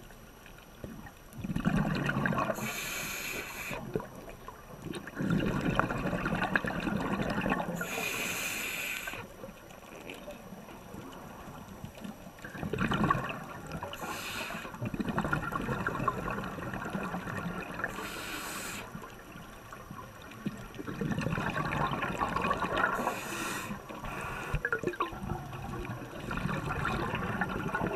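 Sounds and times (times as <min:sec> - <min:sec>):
underwater exhaled air bubbling: 0:00.8 - 0:27.9
regulator hiss: 0:02.5 - 0:03.9, 0:07.7 - 0:09.4, 0:13.8 - 0:14.8, 0:17.8 - 0:19.1, 0:23.0 - 0:24.6.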